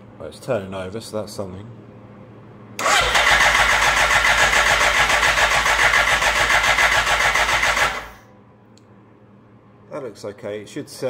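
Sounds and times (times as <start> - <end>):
starter motor cranking engine: 2.8 - 8.2.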